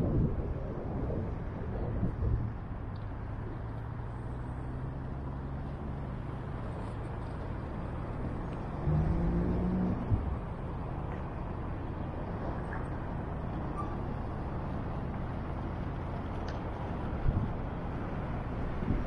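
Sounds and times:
road traffic: 0.0 - 19.0
vehicle passing close: 1.9 - 16.4.

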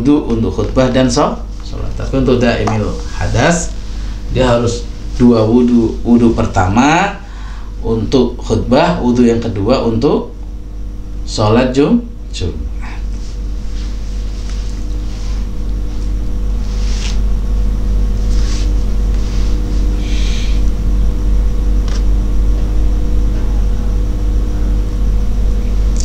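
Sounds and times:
low rumble with hum: 0.0 - 26.0.

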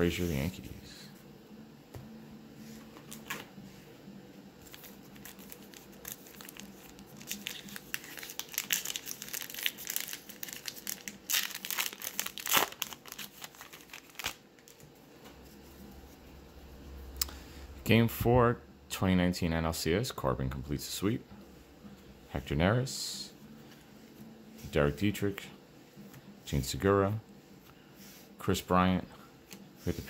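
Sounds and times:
foil wrapper tearing and crinkling: 4.7 - 14.8.

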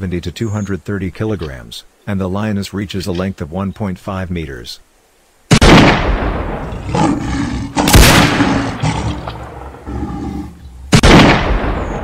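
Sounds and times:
loud rifle shot: 5.5 - 6.6, 7.8 - 8.8, 10.9 - 12.0
lion roaring and growling: 6.6 - 10.9.

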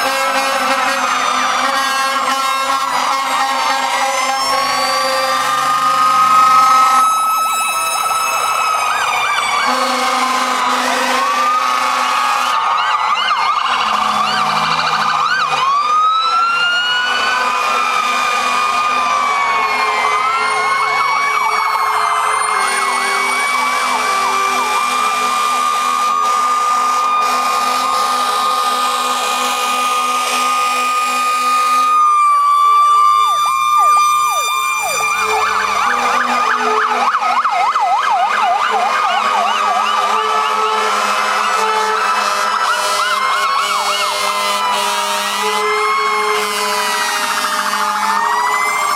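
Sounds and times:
air horn blast: 0.0 - 7.3, 9.6 - 12.6, 13.8 - 15.2, 23.8 - 32.0, 39.3 - 48.2
fire engine sirens wailing: 0.0 - 48.9.

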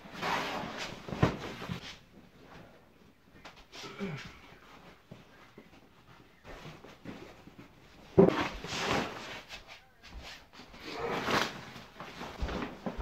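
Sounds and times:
plastic sheeting rustling: 8.2 - 13.0.

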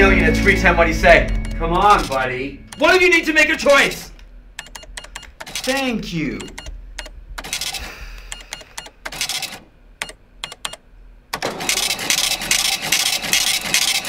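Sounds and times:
mechanical rattle: 4.6 - 14.0.

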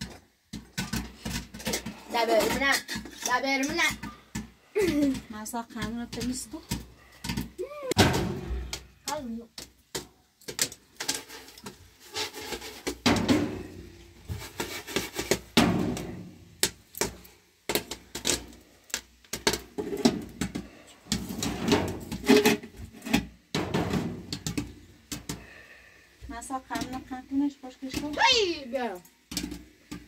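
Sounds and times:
metal pot and lid clattering: 0.0 - 4.2, 21.2 - 24.7
popcorn popping: 0.0 - 30.0.

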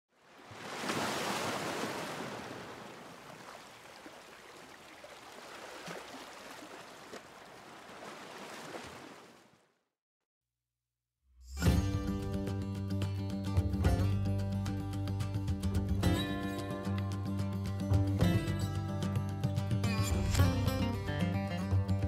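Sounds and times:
water rushing and splashing: 0.1 - 9.6.

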